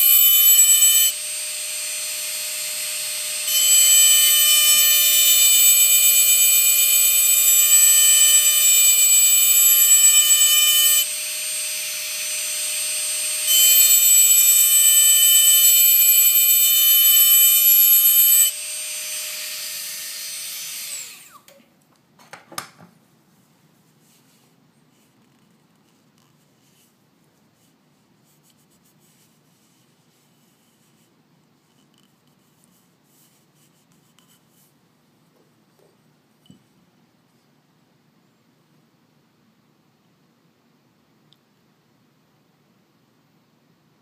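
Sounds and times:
rotary tool engraving glass: 0.0 - 21.4.

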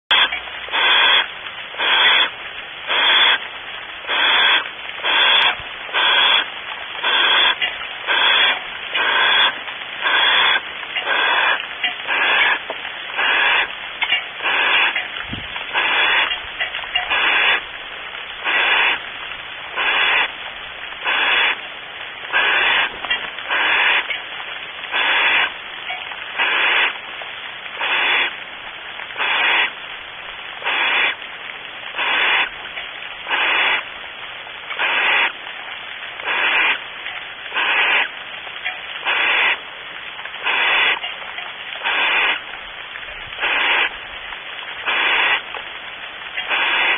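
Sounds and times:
owl rasping hiss call: 0.1 - 13.7, 14.4 - 15.0, 15.7 - 16.4, 17.0 - 17.7, 18.4 - 19.1, 19.7 - 20.4, 21.0 - 21.6, 22.3 - 24.2, 24.9 - 25.6, 26.4 - 27.0, 27.8 - 28.4, 29.2 - 29.8, 30.6 - 31.2, 32.0 - 32.6, 33.3 - 33.9, 34.8 - 35.4, 36.2 - 36.8, 37.5 - 38.2, 39.0 - 39.6, 40.4 - 41.1, 41.8 - 42.5, 43.4 - 44.0, 44.8 - 45.5, 46.4 - 46.9.

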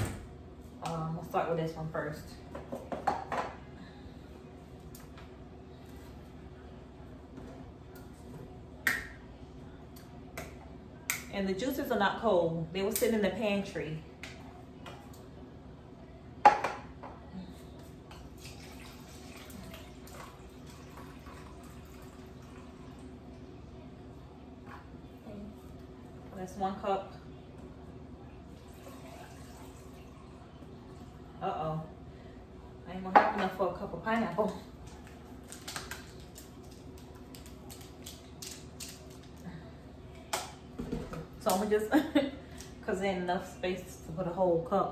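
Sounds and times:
juice trickling into cup: 18.2 - 23.1.

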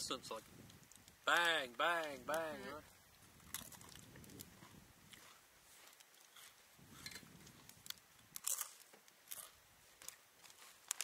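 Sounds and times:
crunchy eating clicks: 7.0 - 11.0.

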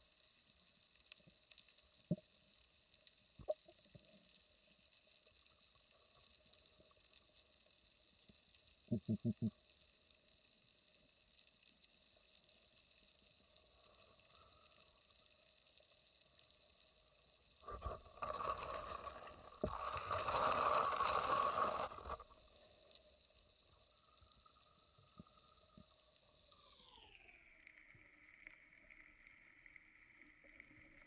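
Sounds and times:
faint steady whine: 0.0 - 31.0
underwater scraping through seagrass: 17.6 - 22.6.

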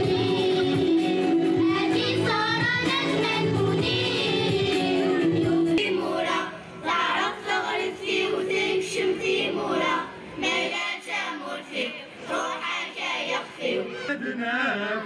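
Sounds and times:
music over loudspeakers: 0.0 - 6.8
children's choir singing: 0.0 - 14.0.

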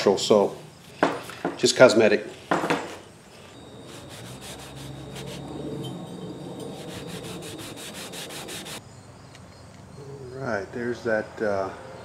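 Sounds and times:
hand-sanding metal: 3.6 - 8.8.

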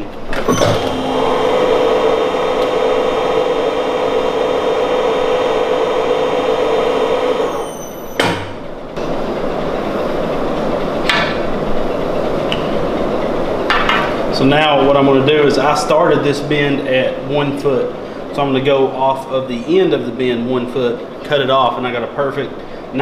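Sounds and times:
tube bender motor humming: 0.0 - 20.0
machine clunk: 0.2 - 2.8, 7.8 - 9.2.

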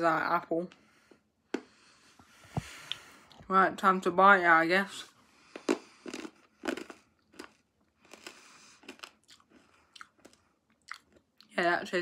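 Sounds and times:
hard candy crunching between teeth: 5.5 - 11.5.

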